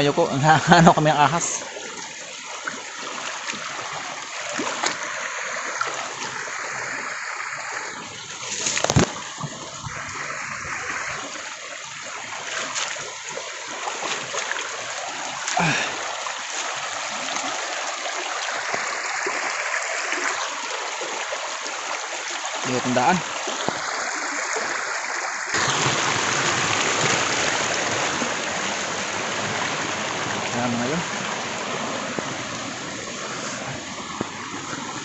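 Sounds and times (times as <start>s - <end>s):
river running over rocks: 0.0s - 35.0s
footsteps splashing in water: 1.8s - 6.4s, 8.3s - 9.9s, 11.4s - 19.4s.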